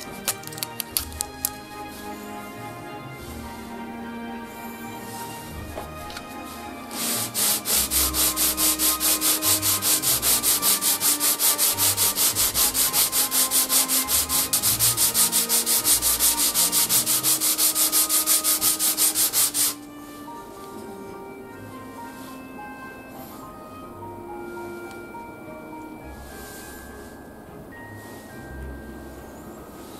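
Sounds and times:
wooden plane rubbing on sandpaper: 4.8 - 19.9.

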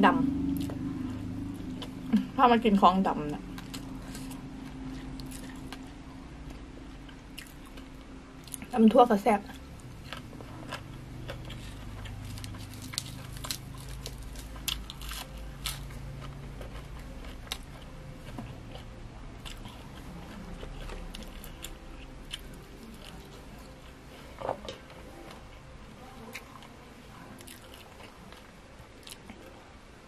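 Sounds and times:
chewing salad crunches: 3.3 - 8.7, 9.6 - 25.4, 27.4 - 29.4.

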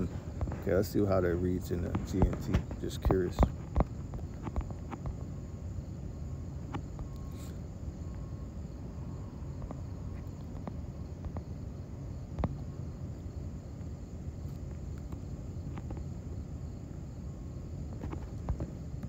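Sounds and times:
low background rumble: 0.0 - 19.0
faint high steady tone: 5.2 - 17.6.

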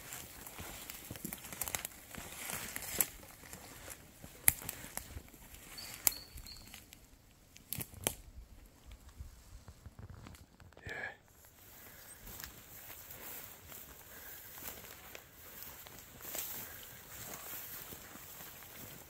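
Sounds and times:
sharp cracks underfoot: 0.0 - 5.6, 7.5 - 8.3
footsteps through dry grass: 0.0 - 7.0, 11.3 - 19.0.

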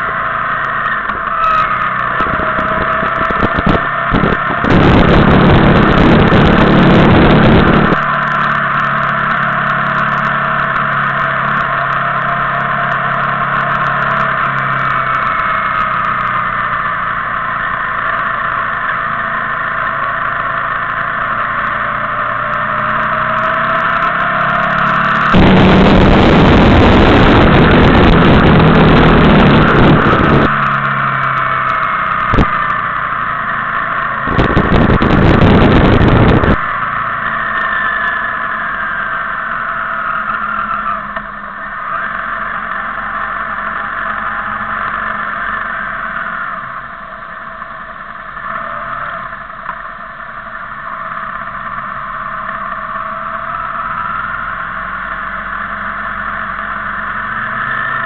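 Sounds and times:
motorcycle engines: 0.0 - 58.0
wind buffeting microphone: 2.1 - 8.0, 25.3 - 30.6, 34.2 - 36.7.

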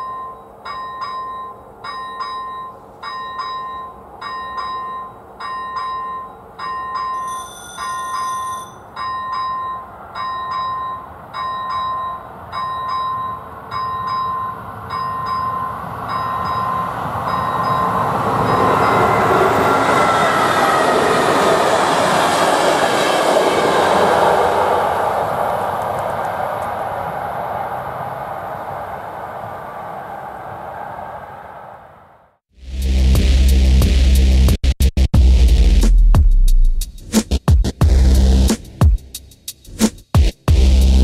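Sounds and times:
level crossing bell ringing: 0.0 - 19.1
passenger train passing: 0.0 - 32.4.

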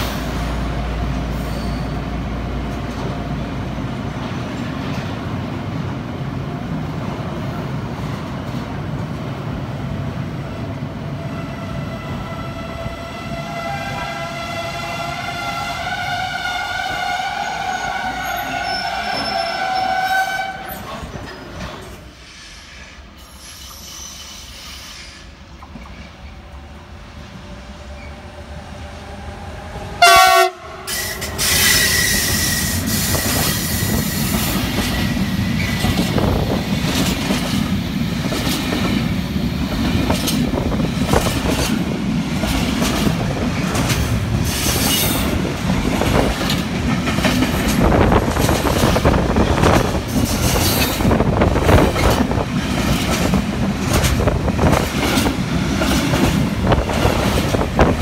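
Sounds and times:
train wheels rumbling on rails: 0.0 - 58.0
electric locomotive horn blast: 11.3 - 20.8, 29.9 - 32.8
wheels clacking over rail joints: 34.3 - 58.0.

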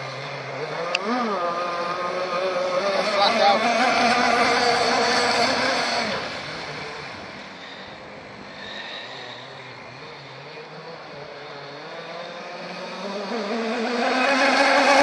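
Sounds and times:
model speedboat engine running: 0.6 - 9.0.

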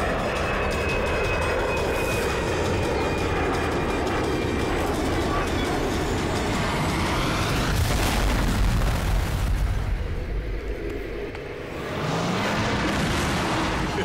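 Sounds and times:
loud rumbling explosion boom: 7.4 - 10.2.

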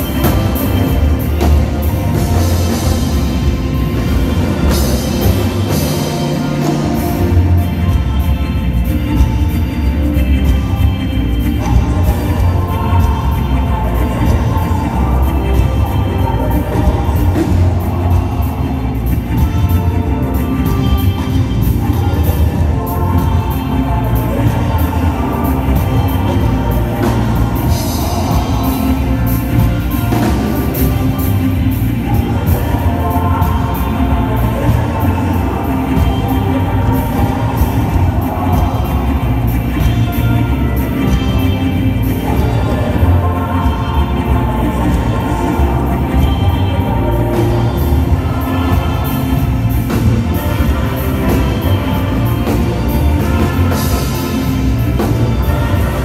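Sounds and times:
bass guitar: 0.0 - 56.0
drum and cymbal hits: 0.0 - 56.0
live band playing: 0.0 - 56.0.

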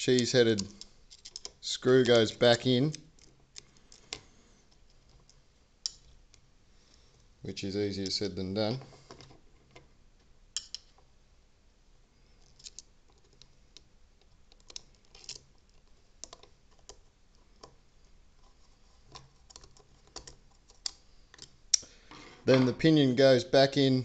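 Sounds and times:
small metal clicks and taps: 0.1 - 6.4, 10.6 - 11.1, 12.4 - 17.0.

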